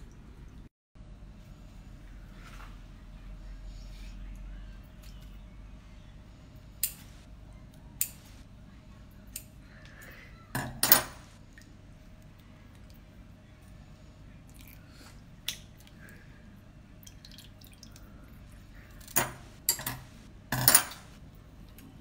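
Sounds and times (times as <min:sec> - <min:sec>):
shellfish wet clicks and squelches: 0:14.5 - 0:16.2
juice dripping onto plate: 0:17.0 - 0:18.4.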